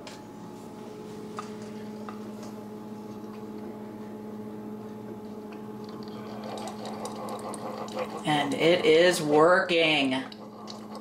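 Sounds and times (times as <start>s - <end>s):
coffee maker humming: 0.0s - 11.0s
coffee hissing and sputtering: 5.8s - 11.0s.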